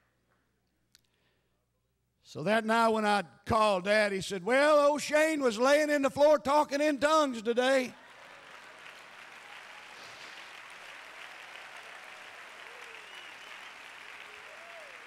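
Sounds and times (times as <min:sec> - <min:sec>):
congregation applauding: 0:07.7 - 0:15.0.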